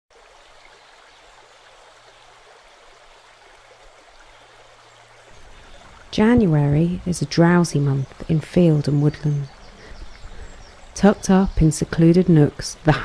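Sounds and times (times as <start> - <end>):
rush of water: 0.1 - 13.0
low hum: 5.4 - 12.3.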